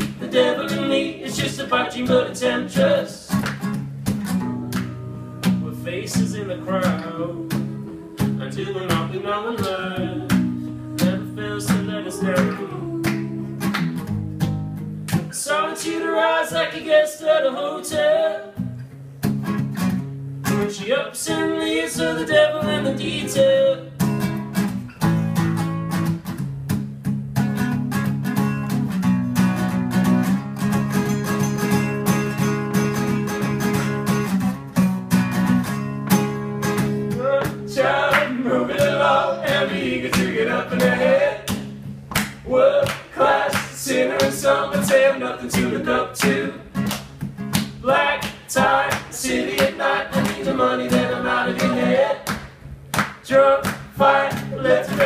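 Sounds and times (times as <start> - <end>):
acoustic guitar strumming: 0.0 - 16.6, 18.1 - 52.9
person singing: 5.2 - 13.7.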